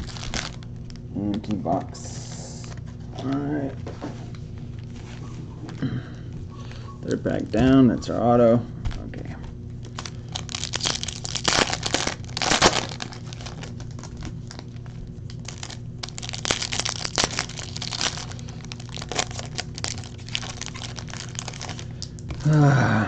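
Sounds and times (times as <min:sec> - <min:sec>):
foil wrapper crinkling and tearing: 0:00.0 - 0:01.0, 0:09.8 - 0:22.6
steady low hum: 0:00.0 - 0:23.0.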